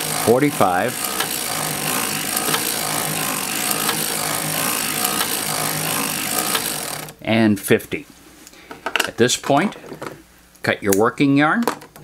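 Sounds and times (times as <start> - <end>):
knitting machine mechanical clatter: 0.0 - 7.2.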